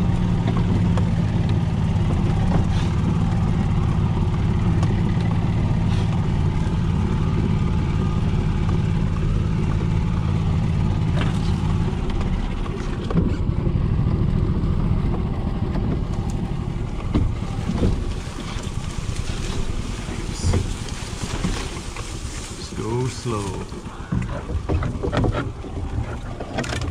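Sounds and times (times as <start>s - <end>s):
golf cart motor hum: 0.0s - 26.9s
branches scraping against cart: 16.1s - 26.9s.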